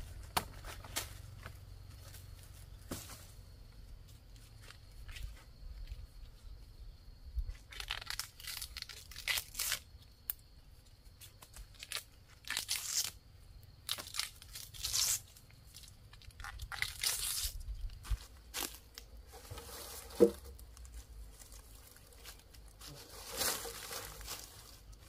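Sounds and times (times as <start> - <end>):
leaves tearing from stalk: 7.6 - 9.8, 11.7 - 13.2, 13.9 - 17.6.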